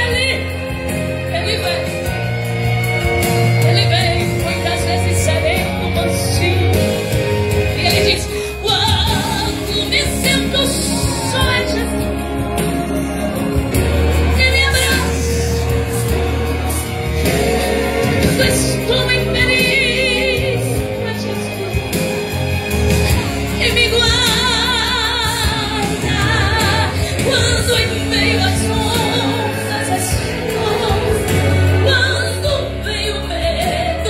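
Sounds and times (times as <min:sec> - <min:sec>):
woman singing gospel: 0:07.7 - 0:12.3, 0:17.1 - 0:21.9, 0:23.6 - 0:34.0.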